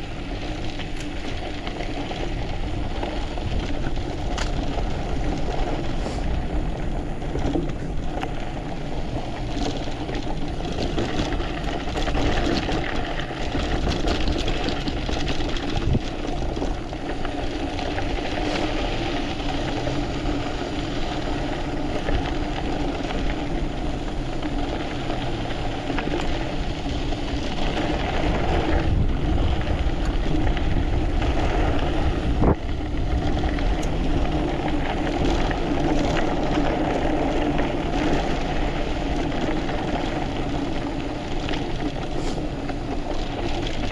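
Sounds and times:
bike rattling clicks: 0:00.0 - 0:43.9
tyre rumble and gravel crunch: 0:00.0 - 0:43.9
wind buffeting microphone: 0:00.0 - 0:43.9.

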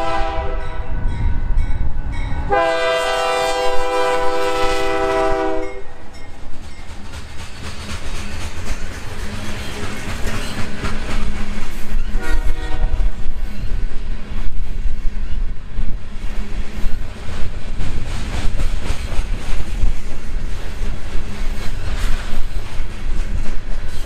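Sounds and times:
train horn: 0:00.0 - 0:01.0, 0:02.4 - 0:06.1, 0:12.1 - 0:13.2
low train rumble: 0:00.0 - 0:24.0
train wheels clacking over rail joints: 0:04.2 - 0:24.0.

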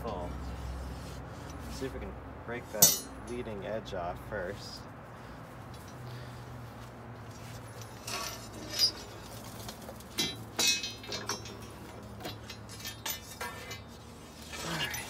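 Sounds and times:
sharp metallic clinks: 0:02.8 - 0:03.5
steel rod scraping ash: 0:07.6 - 0:15.0.

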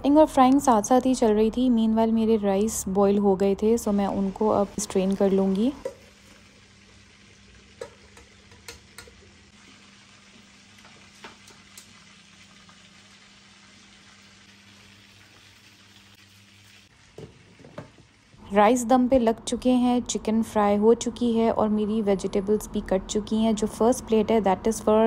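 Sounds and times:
colander taps and knocks: 0:17.2 - 0:18.0.

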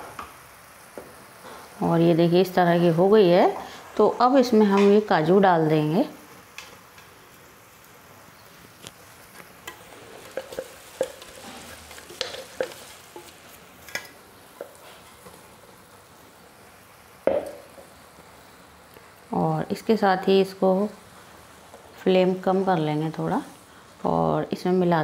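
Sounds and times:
syrup sizzling in a pan: 0:00.0 - 0:24.1
wooden spatula clicks and taps: 0:11.9 - 0:15.4.

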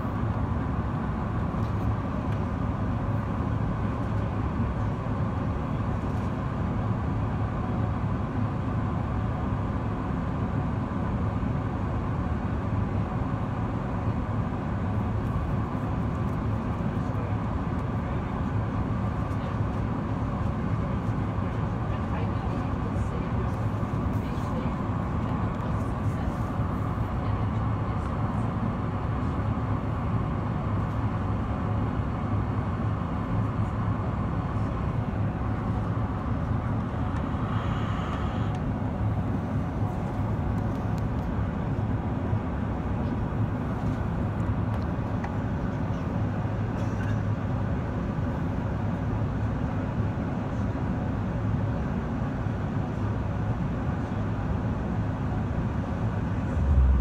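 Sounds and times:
airplane cabin rumble: 0:00.0 - 0:57.0
faint hum: 0:33.4 - 0:41.0, 0:55.3 - 0:57.0.

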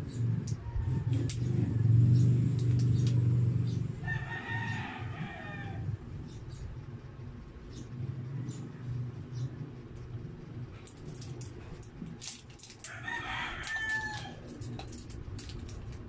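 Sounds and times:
low droning hum: 0:00.0 - 0:16.0
rooster crowing: 0:00.5 - 0:02.0, 0:04.0 - 0:06.0, 0:12.8 - 0:14.7.

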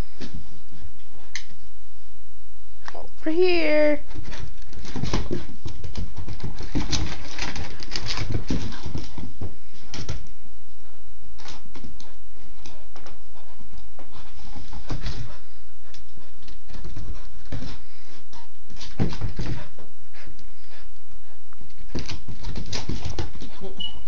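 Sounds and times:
dog claws clicking on wood floor: 0:04.2 - 0:09.3.

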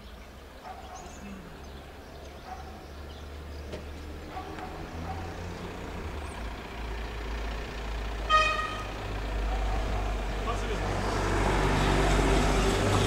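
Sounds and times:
low traffic rumble: 0:00.0 - 0:13.0
vehicle horn toot: 0:08.3 - 0:09.0.

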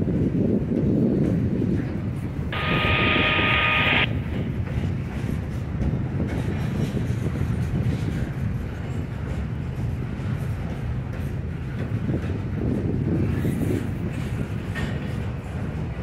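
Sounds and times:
train wheels rumbling on rails: 0:00.0 - 0:16.0
high two-tone squeal: 0:02.6 - 0:04.1.

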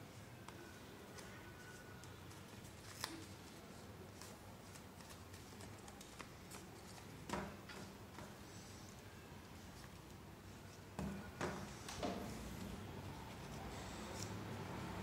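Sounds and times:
paper being folded: 0:00.5 - 0:07.2.

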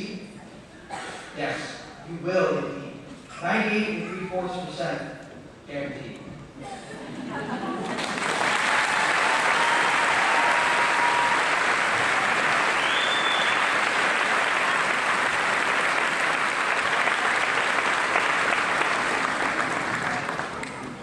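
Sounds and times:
audience applauding: 0:07.8 - 0:21.0.

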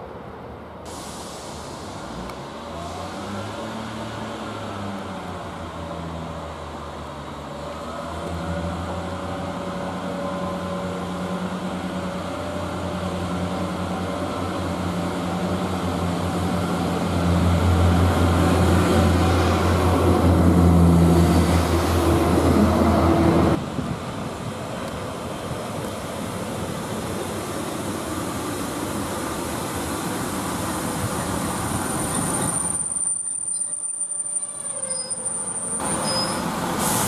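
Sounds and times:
diesel train engine throbbing: 0:06.4 - 0:32.8.

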